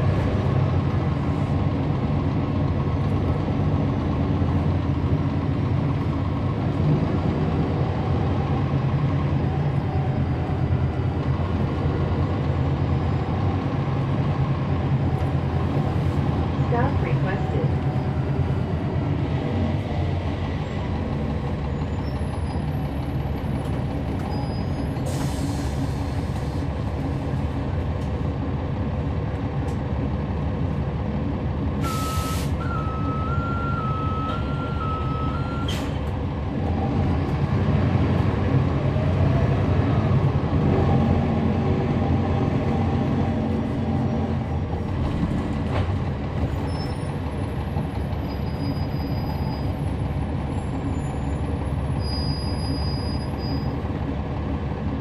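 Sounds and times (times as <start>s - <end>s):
bus diesel engine droning: 0.0s - 55.0s
click: 29.6s - 29.8s
air hissing: 31.8s - 32.6s.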